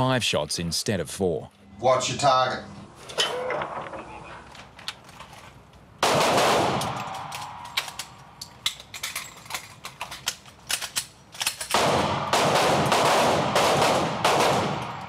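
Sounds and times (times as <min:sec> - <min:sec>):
magazine clicks and rattles: 0:04.5 - 0:05.8, 0:06.8 - 0:11.8
echoing gunshots: 0:06.0 - 0:08.4, 0:11.7 - 0:15.0.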